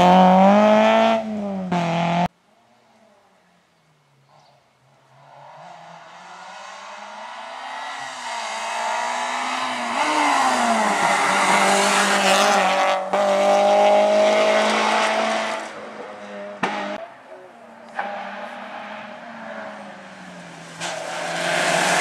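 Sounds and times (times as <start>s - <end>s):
rally car engine high revs: 0.0s - 2.3s, 5.2s - 17.0s, 20.6s - 22.0s.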